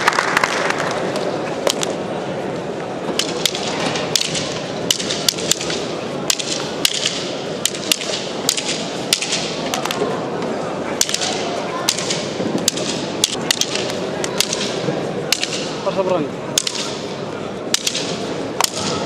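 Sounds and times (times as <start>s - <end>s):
murmur of crowd in hall: 0.0s - 19.0s
fighting sticks clacking: 3.1s - 10.1s, 11.0s - 19.0s.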